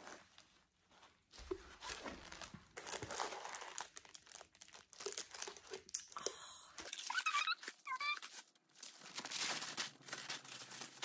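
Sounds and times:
tissue paper crinkling: 0.0s - 5.9s, 7.0s - 11.0s.

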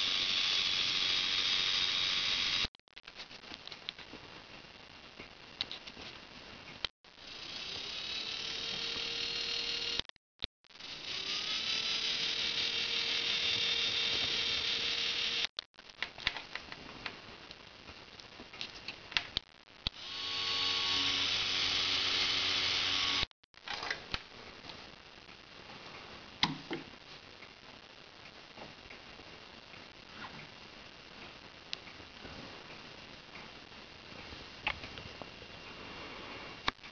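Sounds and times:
small geared motor whining: 10.8s - 15.5s, 20.0s - 23.3s.

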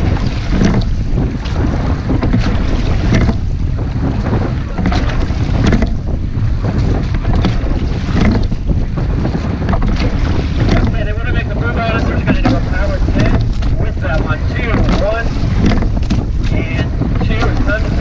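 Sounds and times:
oars clunking and splashing: 0.0s - 18.0s
wind on microphone: 0.0s - 18.0s.

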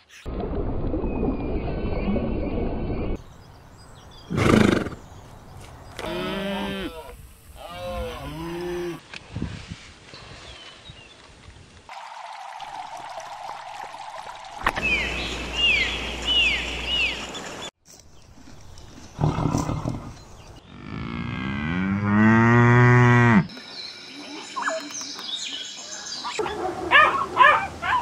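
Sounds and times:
cow mooing: 20.7s - 23.5s.

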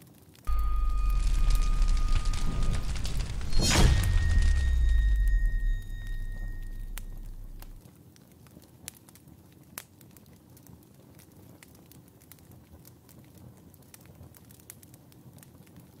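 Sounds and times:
fire crackling and popping: 0.0s - 16.0s
low rumble: 0.5s - 7.8s.

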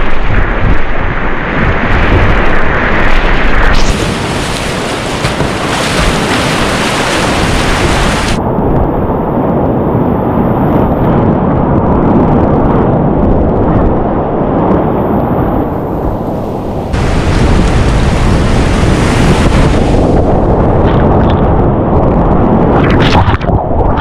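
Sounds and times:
whitewater rapids rushing: 3.9s - 8.4s.

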